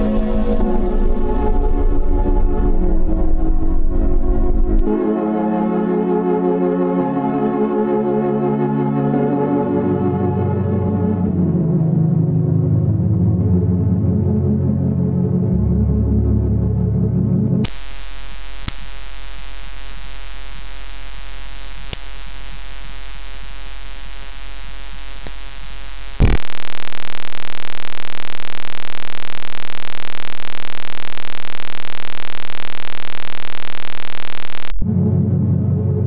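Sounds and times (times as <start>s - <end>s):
static-like noise: 17.6s - 34.9s
buzzy synthesizer drone: 17.6s - 35.0s.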